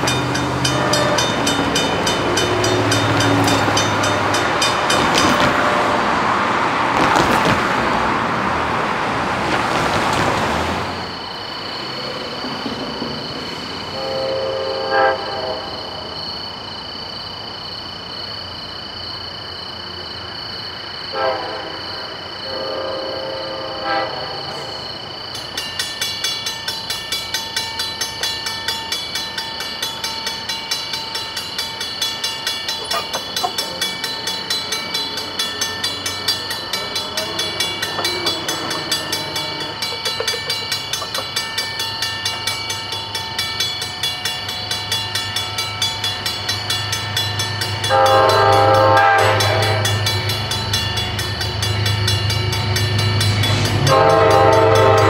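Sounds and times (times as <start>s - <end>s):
diesel locomotive engine rumble: 0.0s - 55.0s
train air horn chord: 0.6s - 1.5s, 14.0s - 15.9s, 21.1s - 21.8s, 22.4s - 24.6s, 47.9s - 50.1s, 53.8s - 55.0s.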